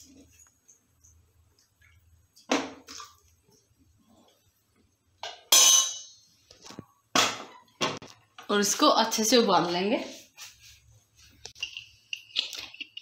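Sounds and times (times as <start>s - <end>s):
metal cookware knocking and clinking: 5.2s - 6.2s
metallic clang: 5.4s - 6.2s.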